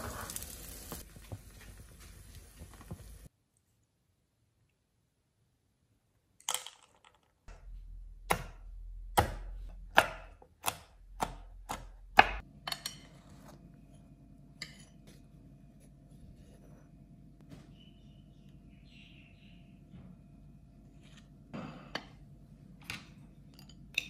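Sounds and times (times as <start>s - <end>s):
knife chopping on cutting board: 8.3s - 12.4s.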